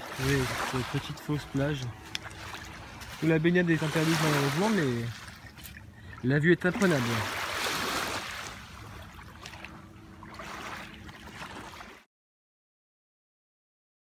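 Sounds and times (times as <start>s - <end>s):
small waves lapping on pebbles: 0.0s - 12.1s.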